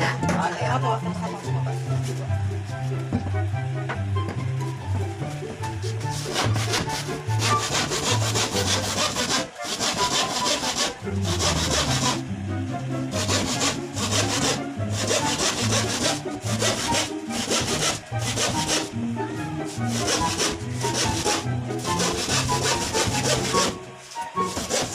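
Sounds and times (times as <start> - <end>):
hand saw cutting plywood: 4.6 - 12.3, 13.1 - 24.9.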